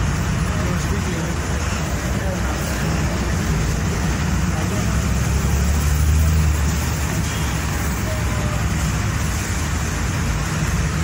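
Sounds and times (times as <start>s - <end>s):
vehicle rumble and road noise: 0.0s - 11.0s.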